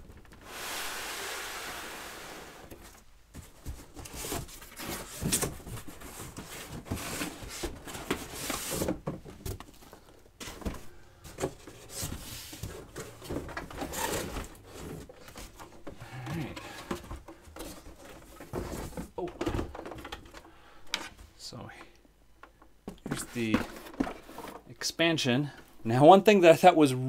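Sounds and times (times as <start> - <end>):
cardboard scraping and rustling: 0.2 - 9.8, 10.4 - 20.2, 23.0 - 24.7.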